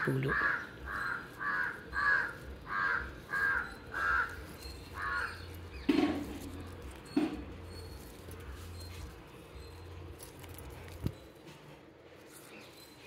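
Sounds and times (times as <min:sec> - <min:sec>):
crow cawing: 0:00.0 - 0:05.5.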